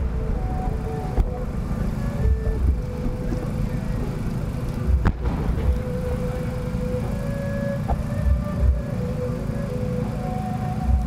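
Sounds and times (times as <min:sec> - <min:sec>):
faint high whistle-like tone: 0:00.0 - 0:04.3, 0:05.4 - 0:11.0
low steady rumble: 0:00.0 - 0:11.0
firework shell launching crack: 0:04.7 - 0:06.1.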